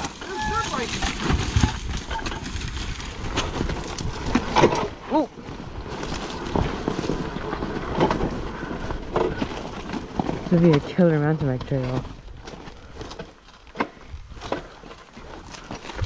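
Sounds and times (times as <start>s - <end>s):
gravel crunching underfoot: 0.0s - 16.0s
person shouting: 0.2s - 1.0s.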